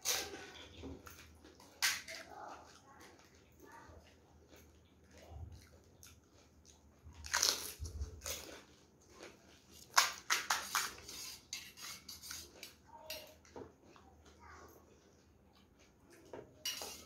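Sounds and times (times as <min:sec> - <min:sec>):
chewing: 0:00.0 - 0:17.0
crisp shells crunching: 0:07.1 - 0:08.7.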